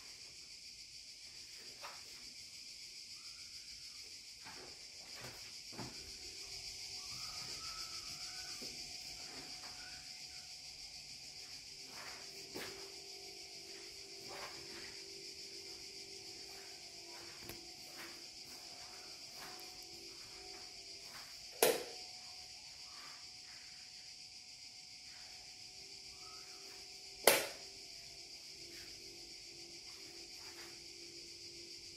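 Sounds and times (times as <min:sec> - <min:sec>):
cicadas chorus: 0:00.0 - 0:31.9
sharp knock: 0:27.3 - 0:27.6.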